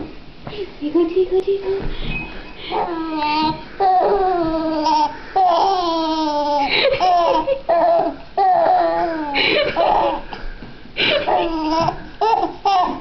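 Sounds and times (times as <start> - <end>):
baby laughing and squealing: 2.7 - 10.3, 11.2 - 13.0.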